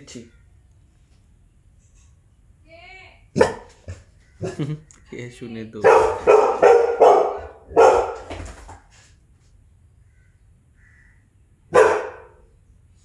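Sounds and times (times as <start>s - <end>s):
puppy barking: 3.4s - 4.6s, 5.8s - 8.4s, 11.7s - 12.5s.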